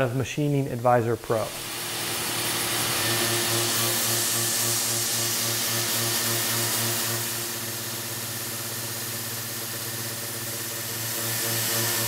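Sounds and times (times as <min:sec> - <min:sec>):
mist coolant hiss: 0:00.4 - 0:09.0
mill spindle whining: 0:01.4 - 0:12.0.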